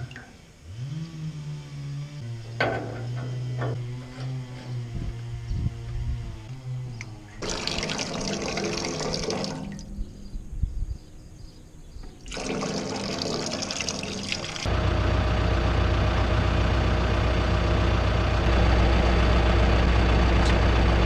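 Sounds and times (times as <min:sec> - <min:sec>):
small knocks: 0:02.5 - 0:04.7
water rushing from float valve: 0:07.4 - 0:09.9, 0:12.2 - 0:14.7.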